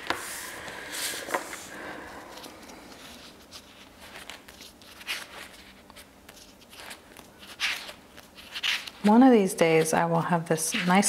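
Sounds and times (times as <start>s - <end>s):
paper rustling: 2.3s - 11.0s.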